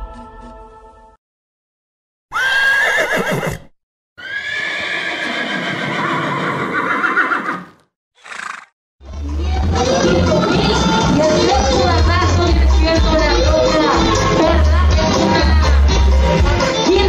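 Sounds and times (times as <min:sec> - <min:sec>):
music: 0:00.0 - 0:01.2, 0:09.0 - 0:17.0
horse whinnying: 0:02.3 - 0:08.7.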